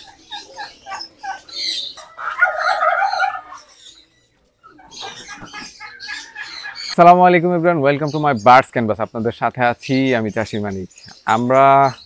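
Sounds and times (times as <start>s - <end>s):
drawn-out bird call: 0.0s - 7.2s
farm birds clucking: 0.0s - 12.0s.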